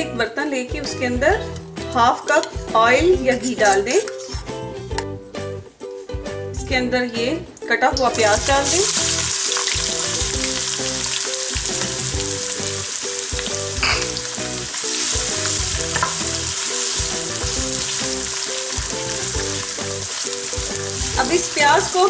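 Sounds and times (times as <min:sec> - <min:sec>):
soft background music: 0:00.0 - 0:22.0
onions sizzling in hot oil: 0:08.3 - 0:22.0
spatula knocking pan: 0:13.4 - 0:14.2, 0:15.2 - 0:21.3.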